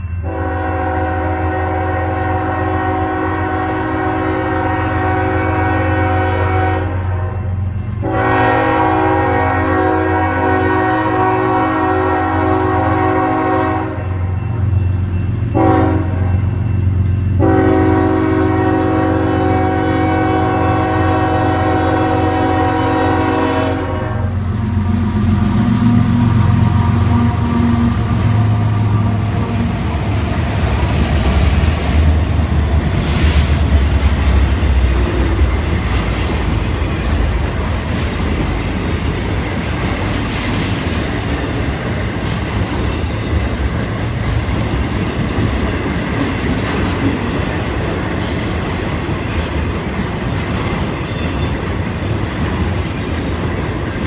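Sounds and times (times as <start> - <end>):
locomotive air horn blasts: 0.2 - 14.2, 15.5 - 16.4, 17.4 - 29.9
locomotive engine rumble: 13.2 - 51.1.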